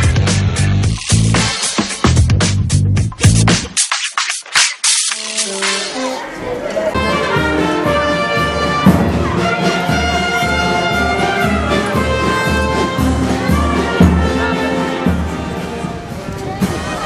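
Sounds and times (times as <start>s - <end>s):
bass drum beat: 0.0s - 5.9s
sustained brass notes: 7.0s - 17.0s.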